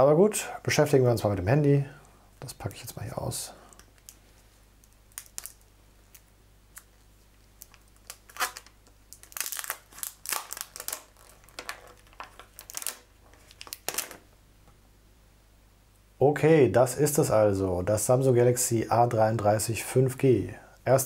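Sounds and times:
plastic film peeling and crinkling: 3.8 - 14.3.

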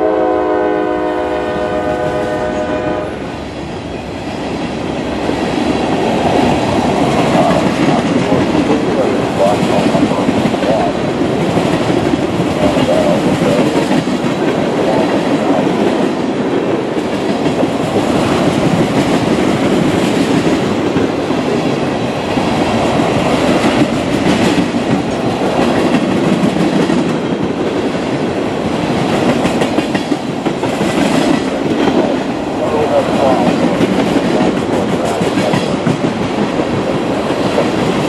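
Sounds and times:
freight train wheels rumbling: 0.0 - 38.0.

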